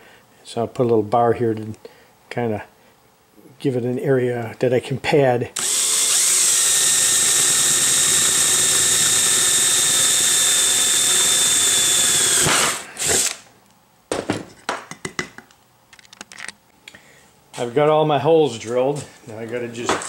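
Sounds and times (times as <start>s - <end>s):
cordless drill boring metal: 5.6s - 13.4s.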